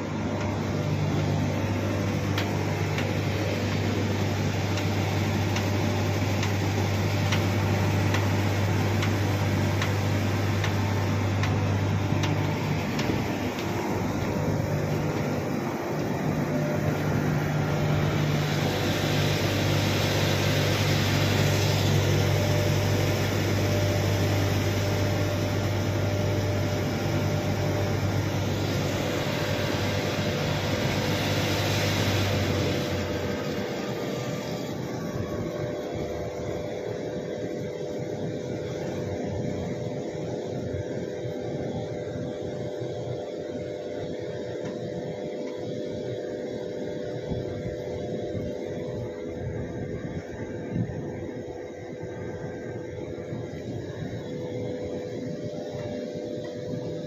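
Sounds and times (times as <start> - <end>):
wash of noise: 0.0 - 36.3
machine hum: 0.0 - 57.0.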